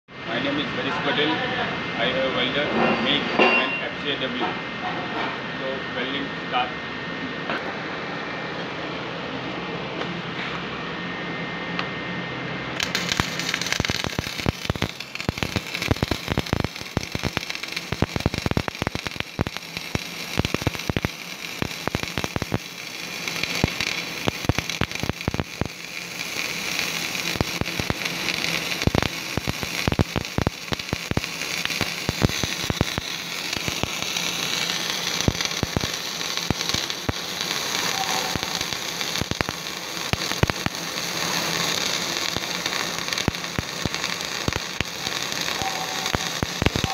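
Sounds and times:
welding arc crackling: 0:12.7 - 0:46.9.

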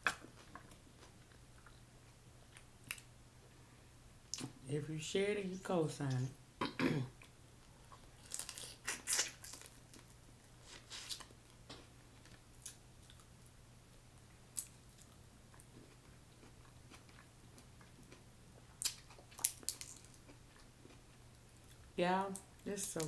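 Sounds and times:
wet chewing smacks and clicks: 0:14.6 - 0:21.0.

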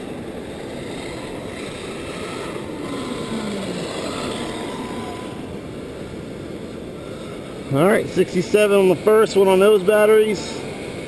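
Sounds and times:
electric motor whine: 0:00.0 - 0:08.0.

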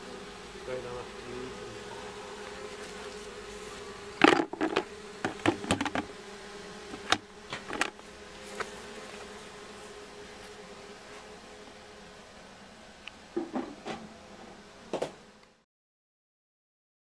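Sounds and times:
bee swarm humming: 0:00.0 - 0:15.7
sharp knocks and clicks: 0:04.2 - 0:06.1.

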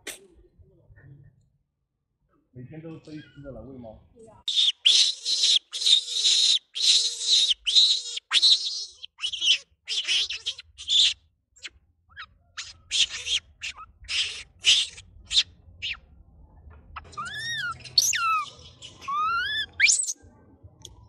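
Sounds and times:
monkey shrill squeals: 0:04.5 - 0:16.0, 0:17.0 - 0:20.2.

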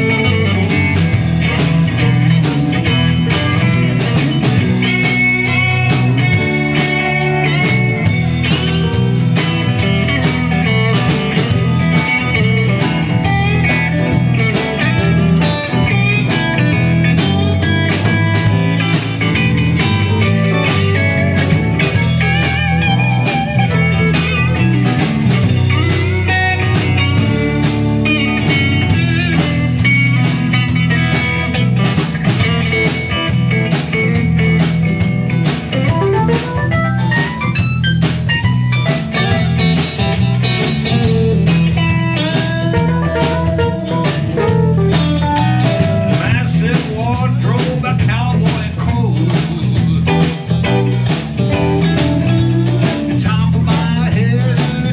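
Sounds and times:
lead guitar bending notes: 0:00.0 - 0:54.9
rock band playing: 0:00.0 - 0:54.9.

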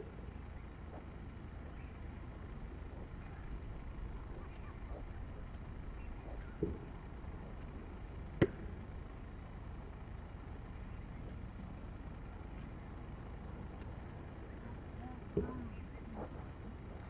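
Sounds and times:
low rumble: 0:00.0 - 0:17.0.

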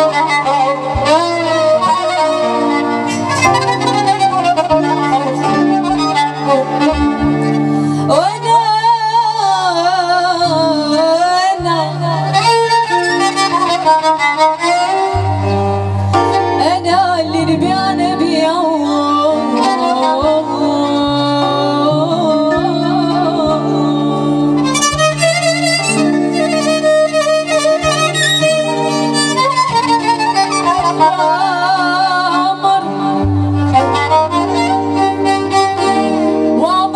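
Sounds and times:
violin: 0:00.0 - 0:36.9
woman singing: 0:08.0 - 0:12.9, 0:16.5 - 0:25.1, 0:29.4 - 0:36.9.

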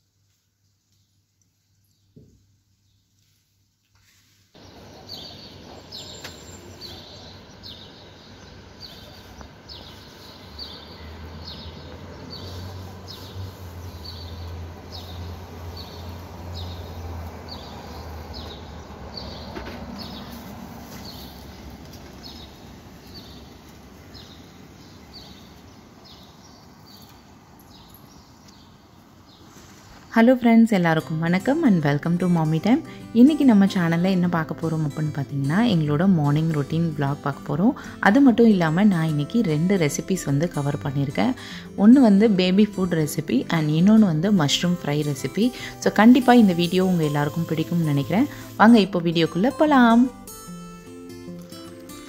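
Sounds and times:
outdoor background noise: 0:00.0 - 0:52.0
small bird chirping: 0:04.6 - 0:29.7.

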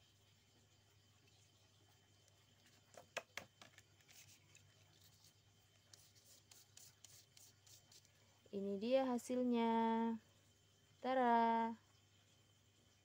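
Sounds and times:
stick scratching card: 0:03.6 - 0:08.1.

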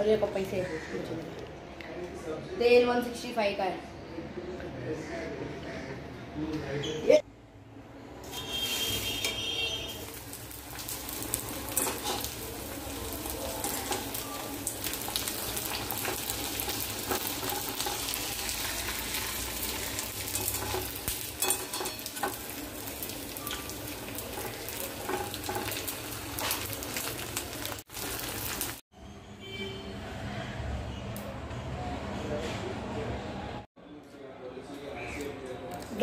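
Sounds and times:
food deep-frying in oil: 0:08.2 - 0:28.8.

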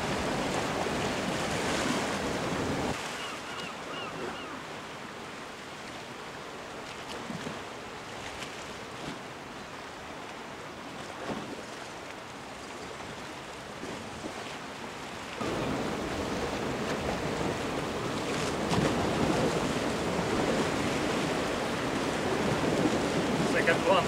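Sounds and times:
waves washing against rocks: 0:15.4 - 0:24.0.

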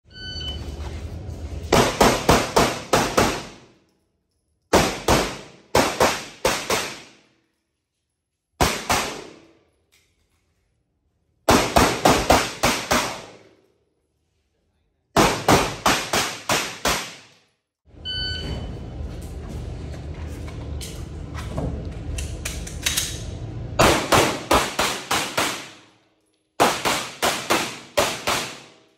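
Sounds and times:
pistol shots indoors: 0:01.6 - 0:07.7, 0:08.4 - 0:10.7, 0:11.3 - 0:13.9, 0:15.1 - 0:17.7, 0:22.5 - 0:28.9.

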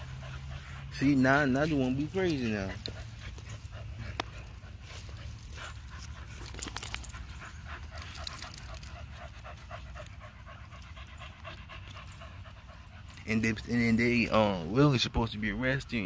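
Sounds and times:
dogs panting: 0:00.0 - 0:16.0
light clicks and rustles: 0:01.4 - 0:13.8.

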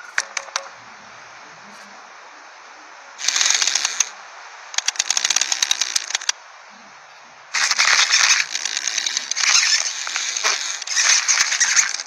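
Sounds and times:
cartoon clicking and rattling: 0:03.2 - 0:04.1, 0:04.8 - 0:06.3, 0:07.6 - 0:12.0.

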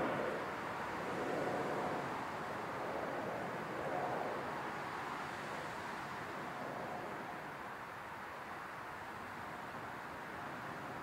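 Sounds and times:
jet engines roaring: 0:00.0 - 0:04.5.

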